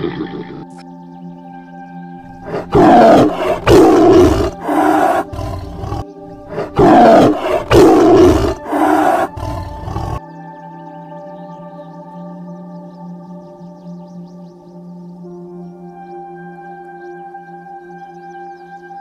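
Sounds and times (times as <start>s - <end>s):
soft background music: 0.0s - 19.0s
tiger roaring: 2.3s - 10.2s.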